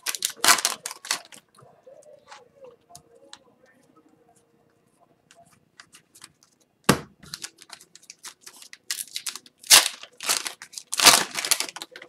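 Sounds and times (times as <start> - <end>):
wrapper crinkling open: 0.0 - 1.4, 7.3 - 12.0.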